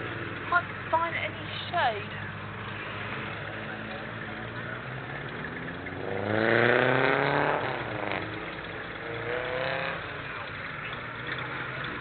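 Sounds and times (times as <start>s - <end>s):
car engine accelerating past: 2.4s - 12.0s.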